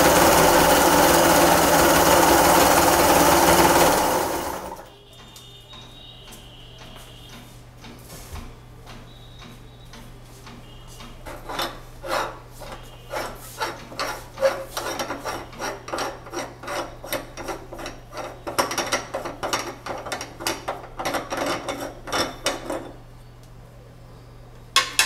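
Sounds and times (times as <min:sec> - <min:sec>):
fingers scraping metal plate: 0:11.3 - 0:22.1.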